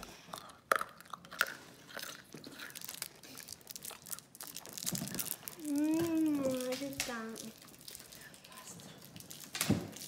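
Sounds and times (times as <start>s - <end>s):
candy crunching: 0.0s - 10.0s.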